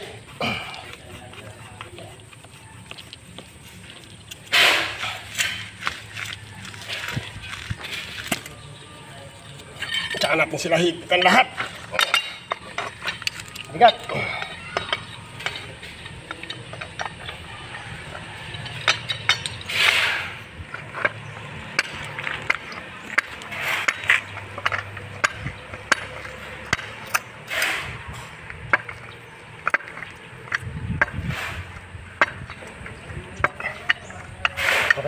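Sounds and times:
wrench scraping on pipe: 0.0 - 8.6, 9.4 - 35.0
metal clicks and clinks: 9.8 - 20.0, 20.6 - 27.7, 32.2 - 35.0.

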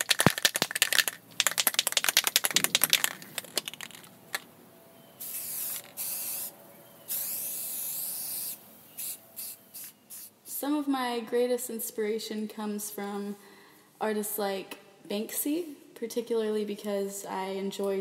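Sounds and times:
spray can ball rattling: 0.0 - 4.5, 5.2 - 6.5, 7.1 - 10.3
spray hissing from nozzle: 5.2 - 6.5, 7.1 - 10.3.

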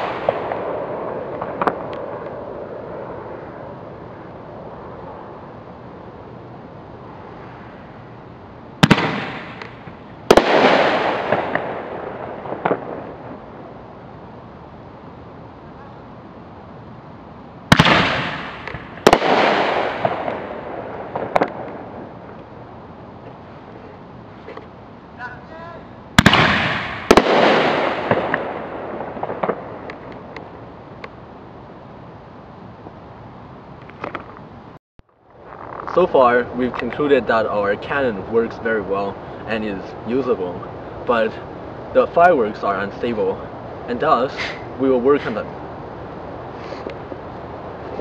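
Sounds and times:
firework shells bursting: 0.0 - 3.1, 8.8 - 13.4, 17.7 - 22.4, 26.2 - 31.2
firework crackle: 0.0 - 5.5, 8.8 - 14.0, 17.7 - 22.7, 26.2 - 31.1, 35.1 - 40.1
small firework pops: 1.3 - 2.4, 8.8 - 11.8, 12.5 - 13.0, 17.7 - 20.4, 21.1 - 22.5, 29.2 - 31.2.

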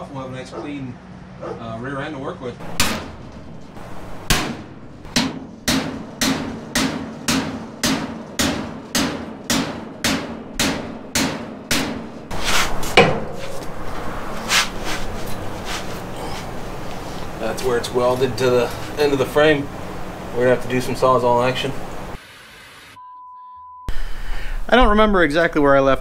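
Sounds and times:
hammer on steel: 2.6 - 13.8
metal cracking: 2.6 - 13.9
metal scraping: 2.6 - 20.8.

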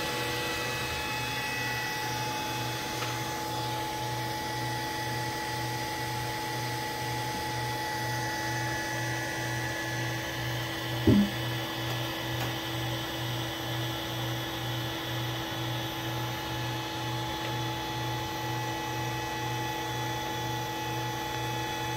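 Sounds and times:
brief thump: 11.1 - 11.4.

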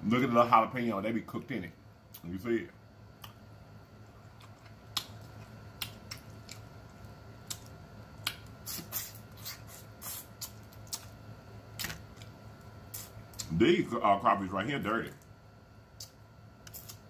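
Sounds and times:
wet lip smacks and sucking: 7.5 - 11.1, 12.9 - 13.5.

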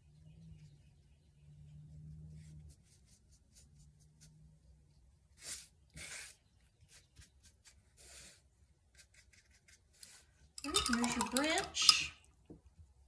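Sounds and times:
paintbrush scratching canvas: 2.1 - 4.7, 5.3 - 10.2.

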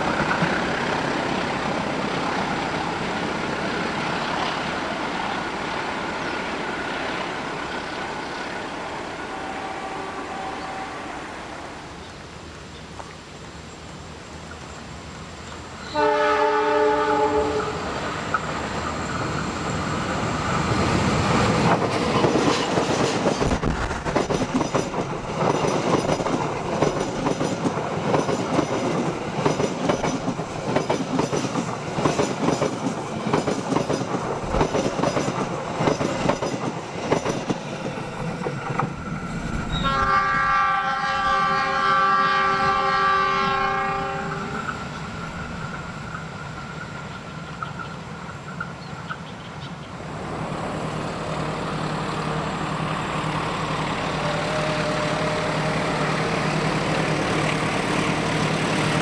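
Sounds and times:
multi-tone train horn: 9.1 - 12.0, 15.8 - 18.0, 39.7 - 44.9, 53.5 - 59.0
train wheels clattering on rails: 17.5 - 40.2.

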